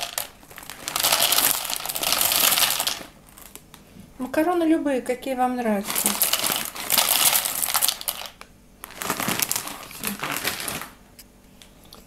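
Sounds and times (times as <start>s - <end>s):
dry pasta rattling into container: 0.0s - 3.6s, 5.8s - 11.0s
plastic bag crinkling: 0.0s - 3.8s, 5.8s - 11.0s.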